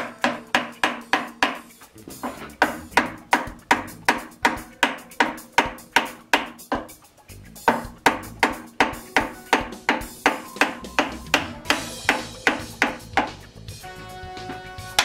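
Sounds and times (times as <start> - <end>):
background music with percussive beat: 0.0 - 15.0.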